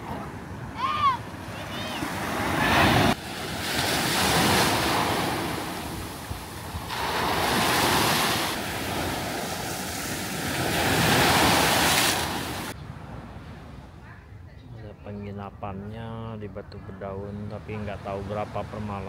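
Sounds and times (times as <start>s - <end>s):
waves breaking on beach: 0.0s - 12.8s.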